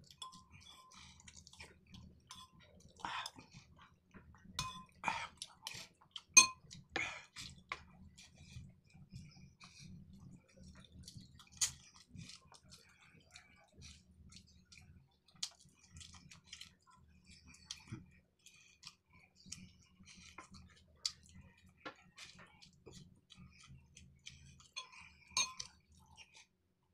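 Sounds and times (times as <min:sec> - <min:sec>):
close-up chewing: 0:00.0 - 0:26.6.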